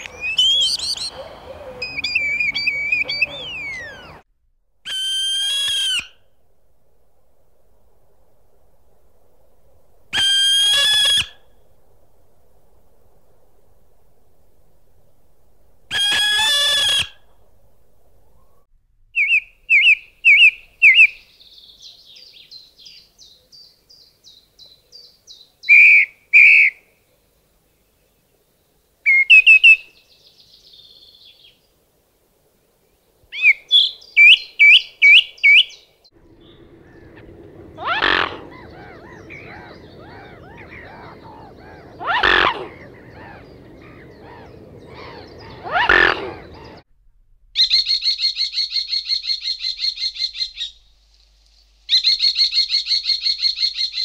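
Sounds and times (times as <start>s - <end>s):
high twittering: 0.0s - 4.2s, 36.2s - 46.8s
thrush singing: 0.0s - 4.2s, 36.2s - 46.9s.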